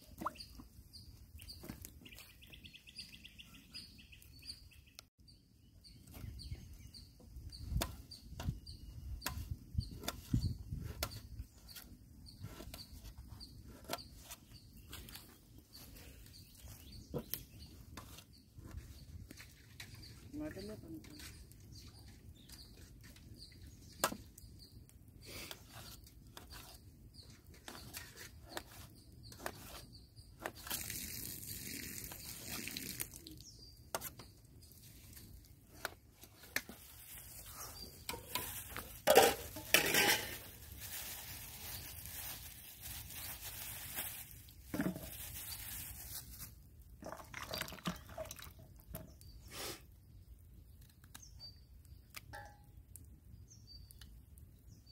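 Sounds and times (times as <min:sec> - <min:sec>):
rustling noise: 0:34.8 - 0:46.7.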